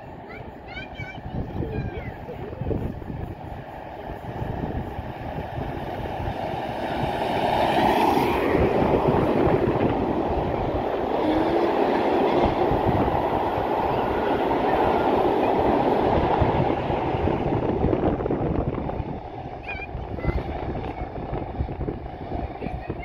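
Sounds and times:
coaches rolling on rails: 0.0 - 23.0
steam locomotive passing: 0.0 - 23.0.

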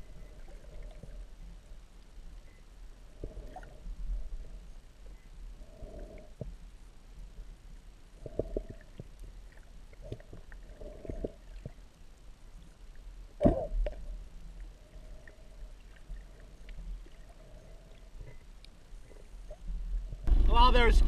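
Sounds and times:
underwater rumble of moving water: 0.0 - 21.0
faint clicks: 13.4 - 19.6.

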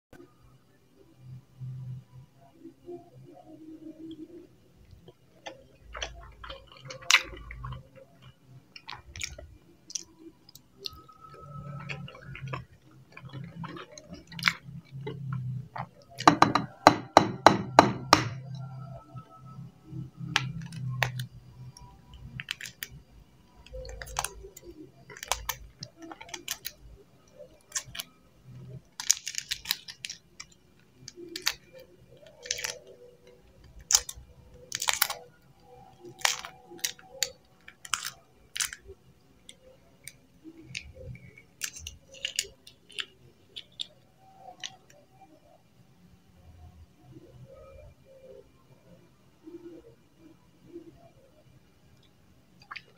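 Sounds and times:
eggshell cracking: 5.0 - 19.0, 20.2 - 23.0, 23.6 - 45.5, 52.0 - 52.9.

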